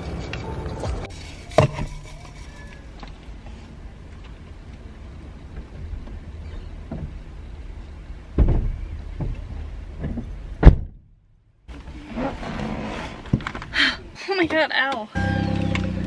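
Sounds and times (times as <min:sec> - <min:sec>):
rustling: 0:00.0 - 0:04.3
knocks and thuds in a car: 0:05.5 - 0:07.3, 0:08.3 - 0:11.1.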